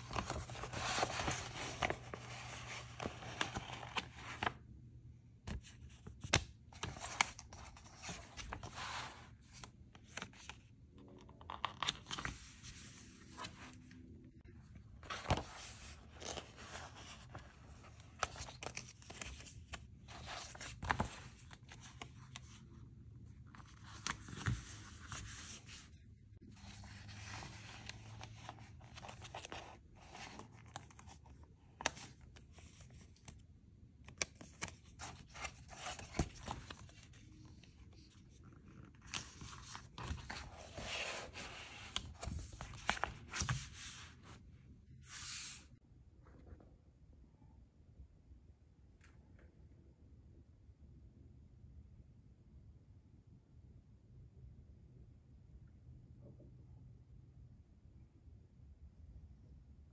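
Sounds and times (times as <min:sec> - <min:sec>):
paper pages rustling: 0:00.0 - 0:04.7, 0:05.5 - 0:10.7, 0:11.4 - 0:22.8, 0:23.4 - 0:33.4, 0:34.0 - 0:45.7.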